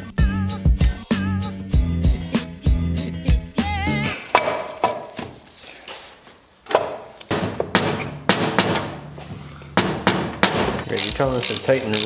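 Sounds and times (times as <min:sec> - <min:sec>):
background music: 0:00.0 - 0:05.2.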